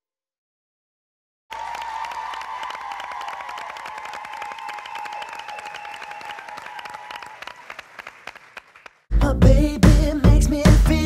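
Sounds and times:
audience applauding and cheering: 0:01.5 - 0:09.1.

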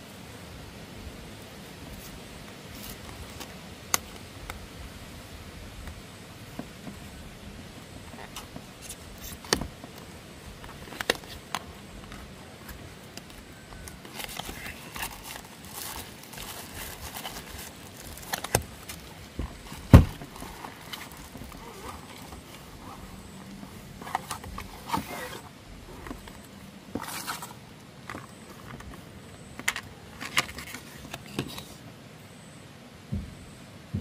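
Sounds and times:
wrapper crinkling: 0:08.1 - 0:27.6
box thump: 0:19.4 - 0:20.5.

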